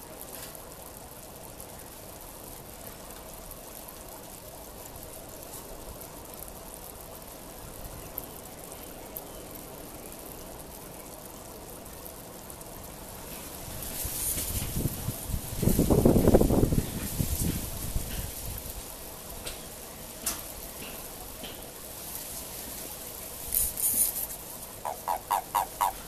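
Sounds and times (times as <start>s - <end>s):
faint ticks: 0.0s - 15.7s, 17.0s - 26.0s
water hissing: 23.4s - 26.0s.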